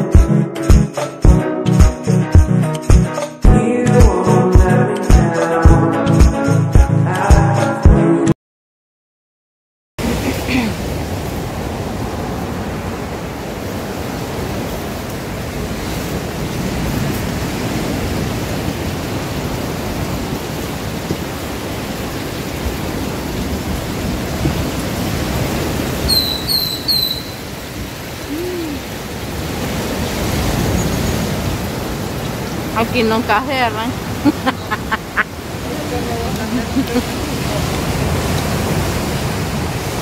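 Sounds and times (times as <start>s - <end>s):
surf breaking on beach: 10.0s - 40.0s
bird chirping: 26.1s - 27.5s.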